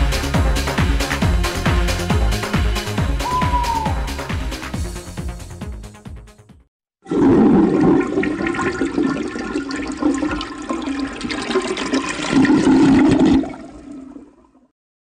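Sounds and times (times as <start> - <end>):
toilet flushing: 7.0 - 14.7.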